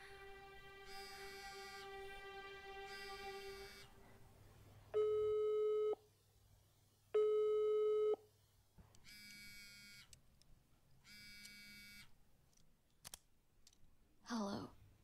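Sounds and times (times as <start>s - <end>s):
electronic phone ring: 3.0s - 3.9s.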